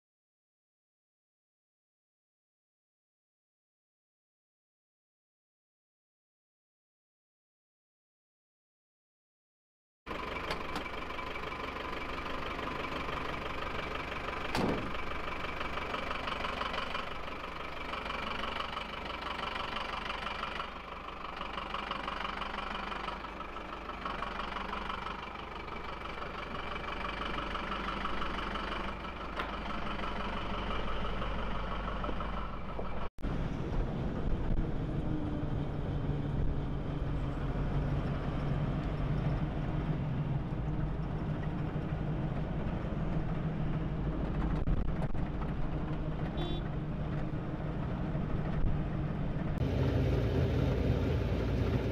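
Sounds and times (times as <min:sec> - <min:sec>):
van engine idling: 0:10.1 - 0:33.5, 0:40.5 - 0:51.9
engine drone inside cab: 0:10.1 - 0:51.9.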